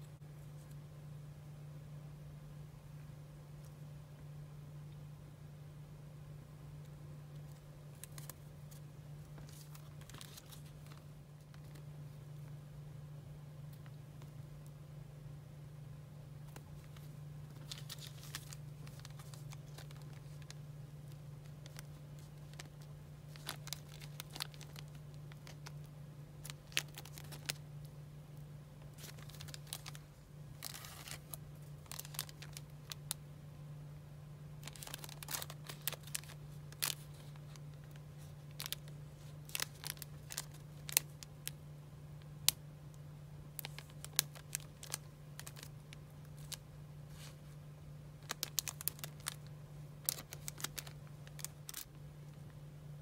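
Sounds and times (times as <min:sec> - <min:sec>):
steady low hum: 0:00.0 - 0:53.0
plastic bags crinkling: 0:07.4 - 0:11.8, 0:16.4 - 0:27.7, 0:28.9 - 0:33.2, 0:34.6 - 0:41.6, 0:43.5 - 0:47.4, 0:48.2 - 0:52.4.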